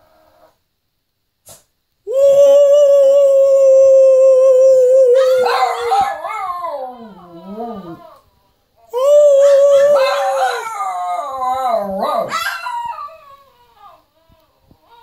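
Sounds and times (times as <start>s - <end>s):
dog howling: 2.4s - 8.2s, 8.9s - 14.0s.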